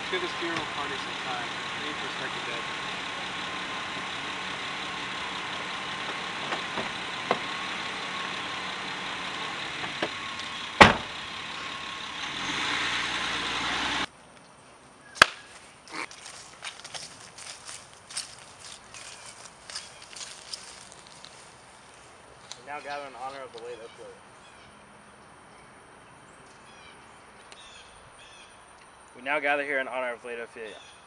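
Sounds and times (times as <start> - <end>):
car door thump: 6.4 - 7.5, 10.8 - 11.2
footsteps on grass: 15.2 - 23.6.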